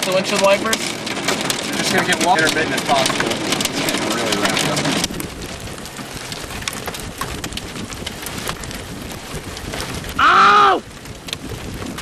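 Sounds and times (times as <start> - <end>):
rain and wind on car: 0.0 - 12.0
raindrops tapping on roof: 0.0 - 12.0
person shouting: 10.2 - 10.8.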